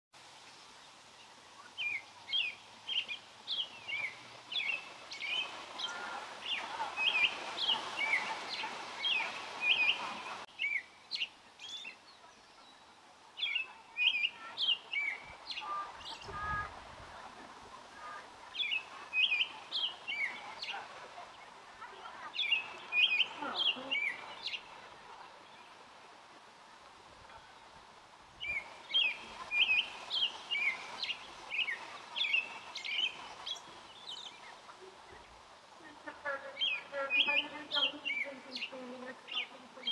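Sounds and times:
robin singing whistled phrases: 18.6s - 20.7s, 22.4s - 24.6s, 28.4s - 34.4s, 36.6s - 39.9s.

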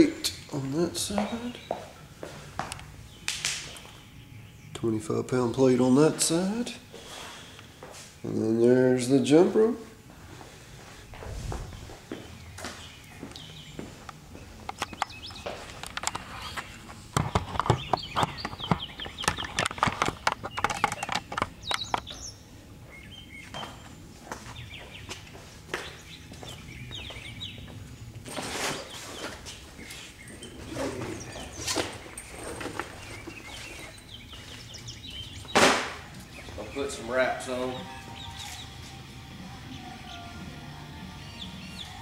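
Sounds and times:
footsteps on concrete: 1.0s - 2.9s, 7.8s - 8.2s, 10.1s - 15.8s, 23.4s - 30.2s, 31.0s - 36.7s
sharp clicks and knocks: 17.2s - 22.1s.

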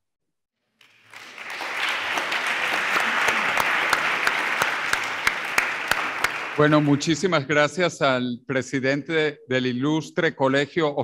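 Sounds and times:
audience applauding: 0.8s - 7.4s.

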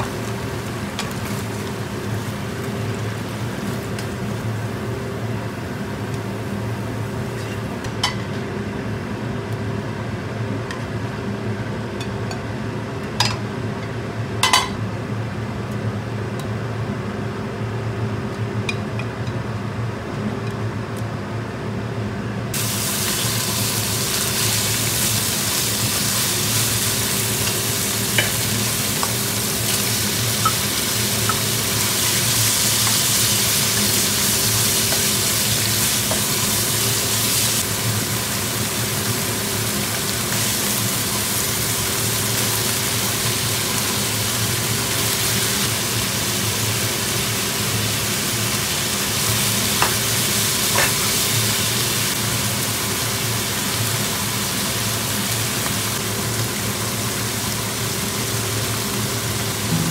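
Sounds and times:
stir-fry sizzling in hot oil: 0.0s - 8.4s, 22.5s - 59.9s
utensils tapping a pan: 50.7s - 51.0s.

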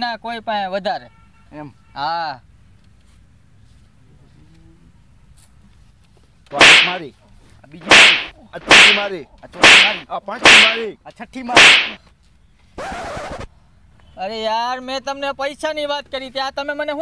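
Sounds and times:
slap sound effects: 6.5s - 7.0s, 7.8s - 10.8s, 11.6s - 12.0s.

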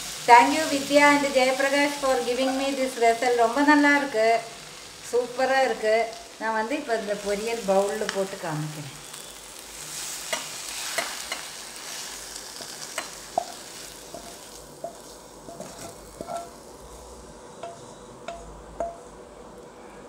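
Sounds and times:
spatula knocking against pan: 17.6s - 19.0s.

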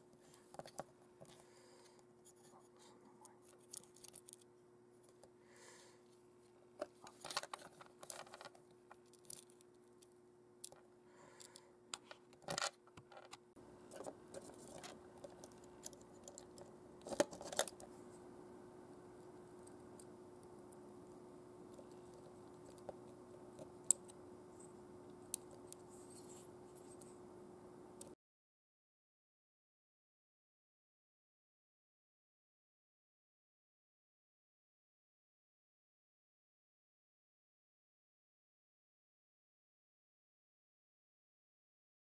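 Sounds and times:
faint steady hum: 0.0s - 28.2s.

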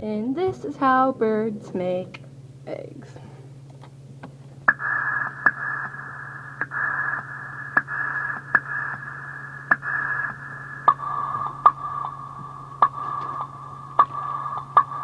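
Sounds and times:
steady low hum: 0.0s - 15.0s
static hiss: 4.6s - 15.0s.

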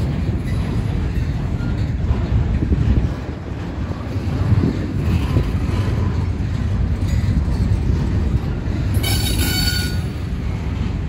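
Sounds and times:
train wheels rumbling on rail: 0.0s - 11.0s
high-pitched wheel squeal: 9.0s - 10.2s.

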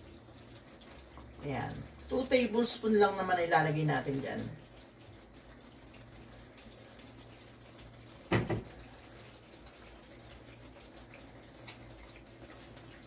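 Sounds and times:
sauce simmering with hiss: 0.0s - 13.0s
spatula knocking against pan: 8.3s - 8.7s.

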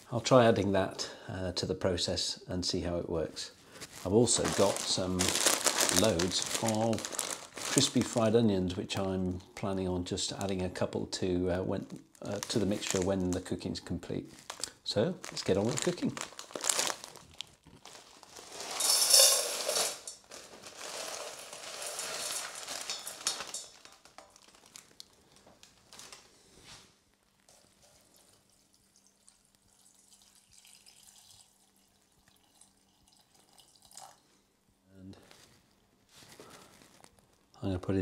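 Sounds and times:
plastic bag crinkling: 3.7s - 8.4s, 11.7s - 28.3s, 36.2s - 37.6s
dry food rattling into pan: 18.2s - 24.9s
water pouring: 27.5s - 34.2s.

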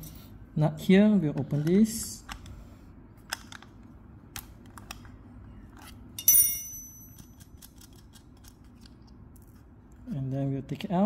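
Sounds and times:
metal clink on hard surface: 6.2s - 7.4s.

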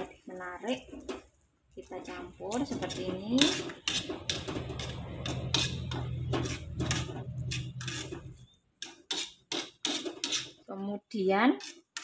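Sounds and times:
metal spatula scraping wok: 0.0s - 12.0s.

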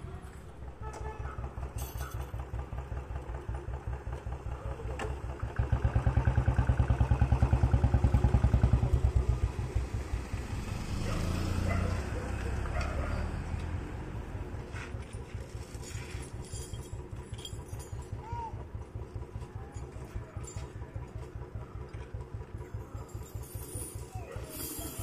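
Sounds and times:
vehicle engine chugging: 0.0s - 25.0s.

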